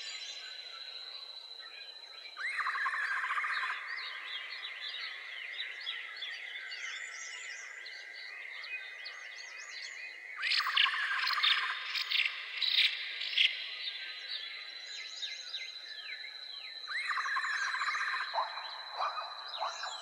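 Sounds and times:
birds chirping and whistling: 17.0s - 20.0s.

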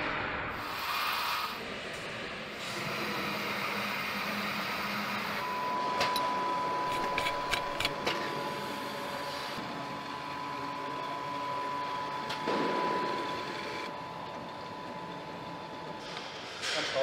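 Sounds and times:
continuous high-pitched tone: 5.4s - 16.0s.

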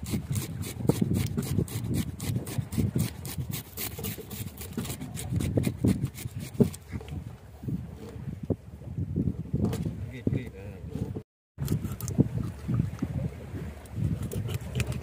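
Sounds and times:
knife sawing through fish: 0.0s - 6.9s, 14.1s - 15.0s.

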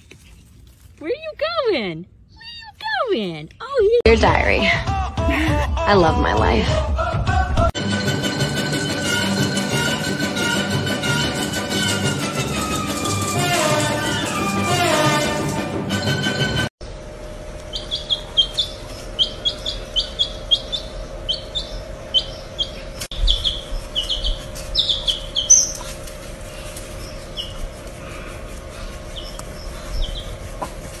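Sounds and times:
baby chick peeping: 17.6s - 30.9s.

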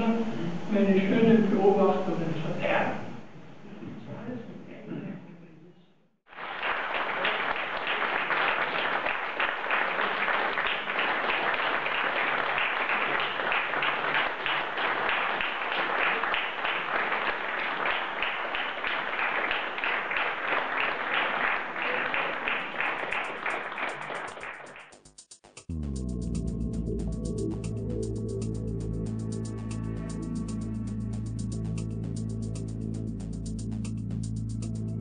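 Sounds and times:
audience applauding: 6.3s - 25.0s.

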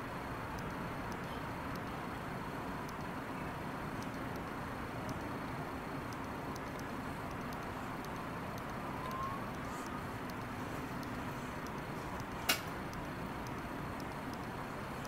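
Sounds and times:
sharp click: 6.1s - 14.6s.

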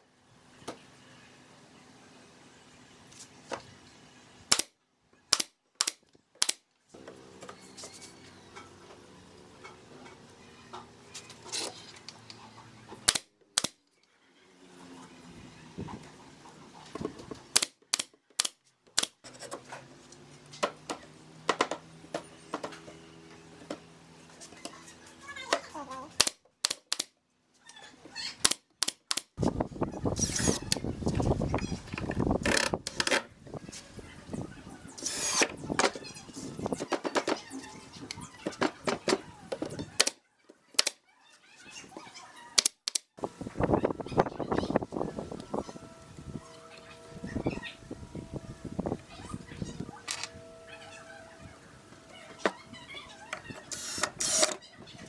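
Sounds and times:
pneumatic nail gun shots: 4.5s - 6.6s, 13.0s - 13.8s, 17.5s - 19.2s, 53.7s - 54.6s.

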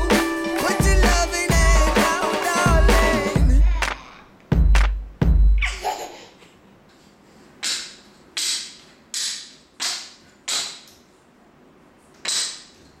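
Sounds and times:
hands slapping tile floor: 12.2s - 12.7s.

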